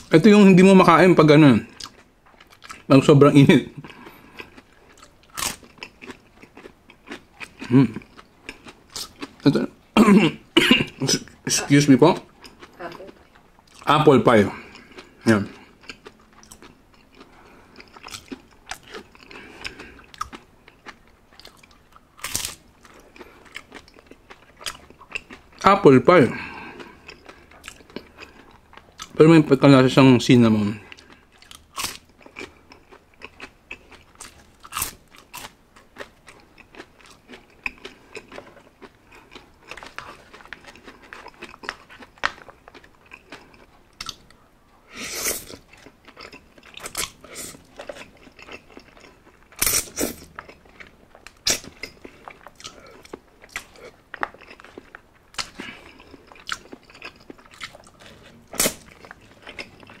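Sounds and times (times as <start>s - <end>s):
crisp bites and chewing: 3.9s - 9.4s, 15.8s - 25.5s, 31.0s - 44.3s, 45.4s - 60.0s.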